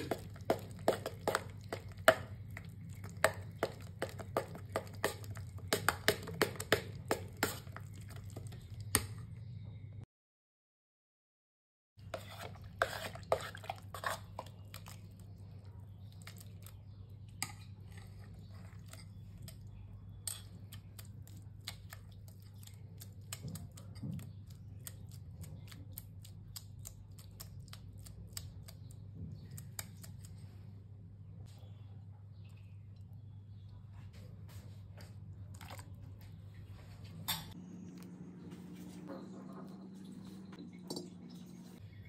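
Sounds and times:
wet squelching of kneaded butter: 0:00.0 - 0:09.3, 0:12.0 - 0:30.6
steady low hum: 0:17.0 - 0:42.0.

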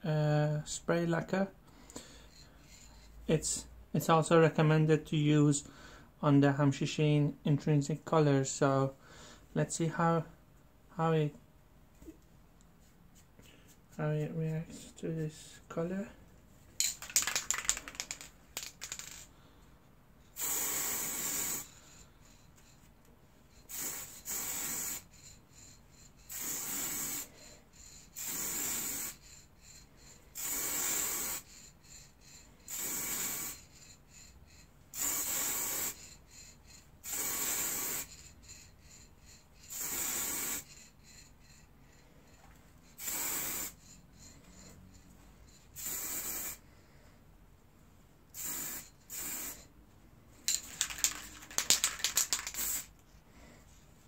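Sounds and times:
sharp rattling clicks: 0:16.8 - 0:19.3, 0:50.5 - 0:52.8
aerosol spray hissing: 0:20.3 - 0:22.4, 0:23.6 - 0:41.6, 0:42.9 - 0:44.6, 0:45.8 - 0:46.6, 0:48.3 - 0:49.7, 0:50.8 - 0:52.9.

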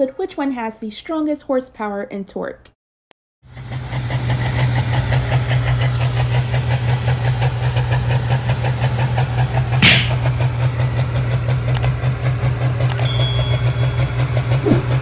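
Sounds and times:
tractor engine running: 0:03.5 - 0:15.0.

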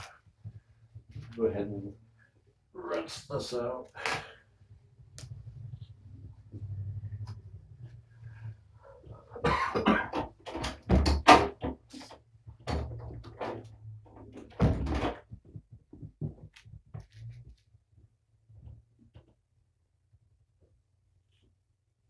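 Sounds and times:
knocks and bumps: 0:09.0 - 0:17.3.

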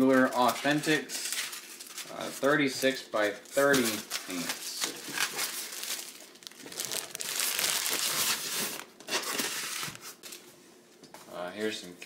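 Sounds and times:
plastic bag crinkling: 0:03.4 - 0:10.4.

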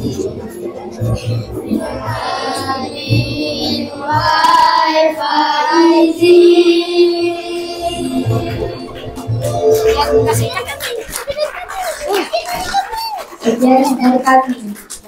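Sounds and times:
boys singing: 0:00.0 - 0:10.6
backing track music: 0:00.0 - 0:11.8.

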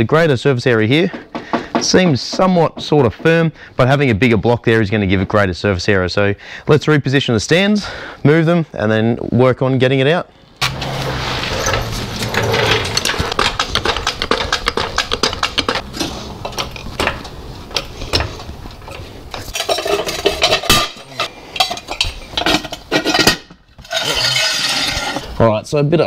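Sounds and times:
metal jack stands clinking: 0:19.3 - 0:25.2.

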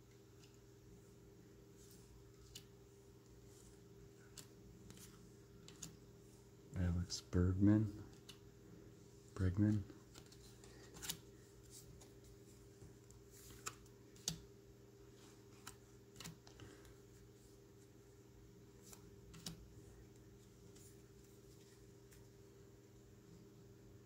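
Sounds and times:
low steady hum: 0:00.0 - 0:24.0
cards flicking and tapping: 0:04.2 - 0:06.0, 0:15.5 - 0:16.9, 0:18.8 - 0:20.9.

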